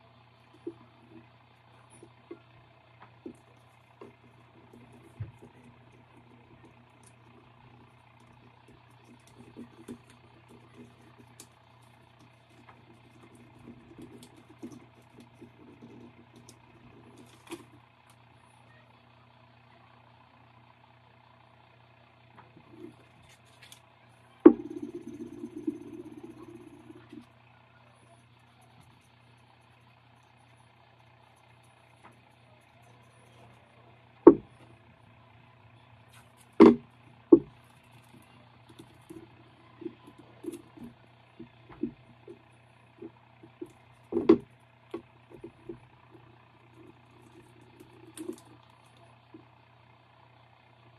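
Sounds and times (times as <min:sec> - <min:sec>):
faint low hum: 0:00.0 - 0:50.9
tumbler knocking on wooden tabletop: 0:34.3 - 0:34.5.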